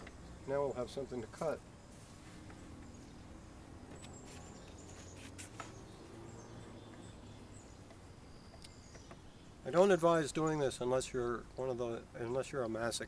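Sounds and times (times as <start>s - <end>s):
faint bird chirps: 0.0s - 9.8s.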